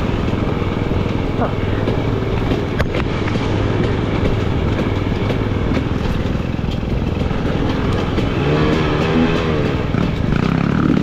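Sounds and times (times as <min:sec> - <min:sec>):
bike knocking and clattering: 0:00.0 - 0:11.0
dirt bike engine revving: 0:07.0 - 0:11.0.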